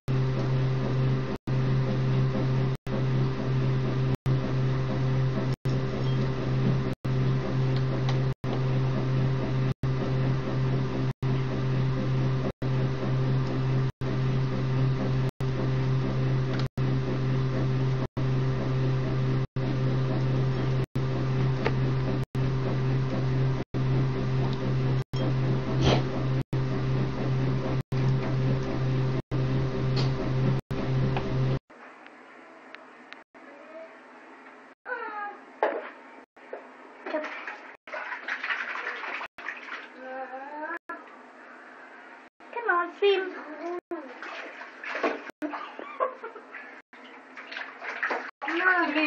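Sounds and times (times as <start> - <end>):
low hum: 0.1 - 31.6.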